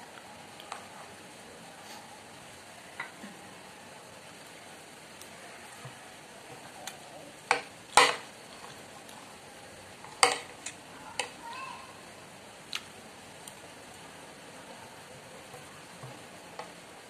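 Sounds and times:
faint steady hiss: 0.0 - 17.0
cutlery clinking on a ceramic plate: 7.5 - 8.3.

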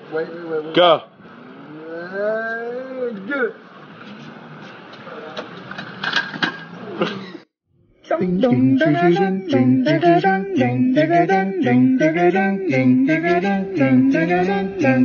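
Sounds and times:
street noise: 0.0 - 7.5, 8.5 - 15.0
person singing a melody: 8.0 - 15.0.

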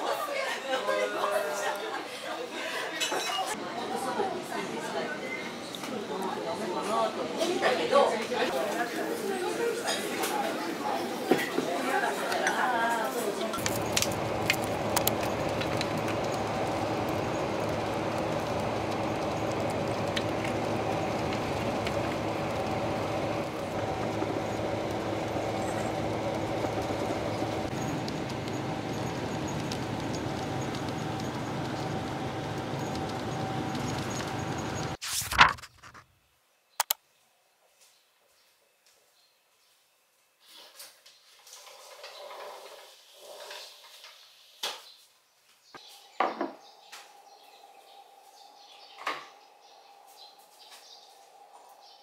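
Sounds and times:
bus engine and road noise: 13.6 - 35.0
sharp clicks: 13.6 - 35.0, 36.8 - 37.0.

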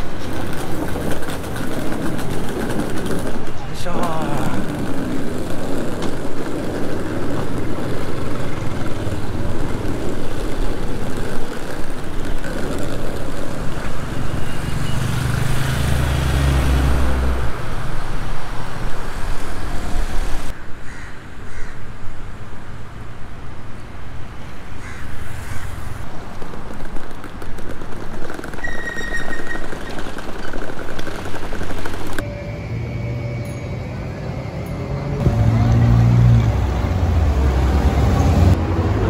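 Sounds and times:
busy street traffic: 0.0 - 39.0
deep engine note: 32.2 - 39.0.

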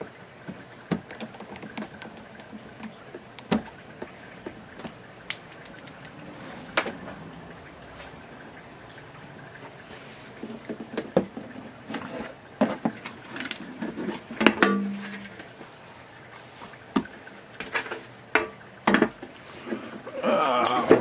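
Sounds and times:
turntable knocking and rattling: 0.5 - 7.2.

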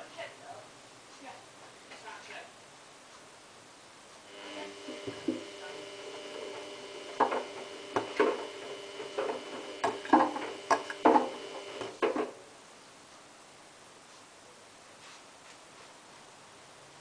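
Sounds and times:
washing machine motor whine: 4.2 - 12.4.

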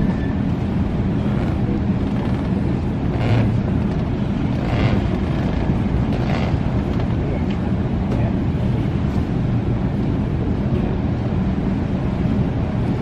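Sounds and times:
ship rumble: 0.0 - 13.0
wind buffeting microphone: 0.0 - 13.0.

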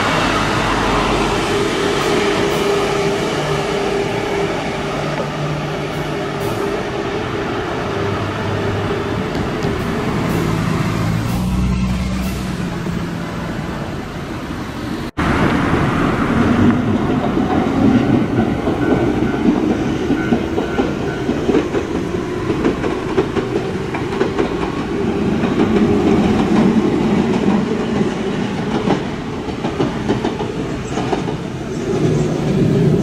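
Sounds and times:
train wheels rumbling on rails: 0.0 - 33.0
clickety-clack over rail joints: 9.3 - 11.6, 16.4 - 33.0.

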